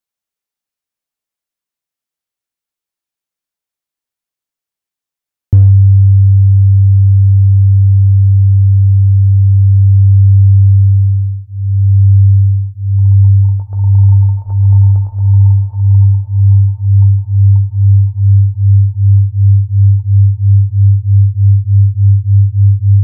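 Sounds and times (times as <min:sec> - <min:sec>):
deep humming tone pulsing: 0:05.6 - 0:23.0
faint higher tone: 0:12.8 - 0:23.0.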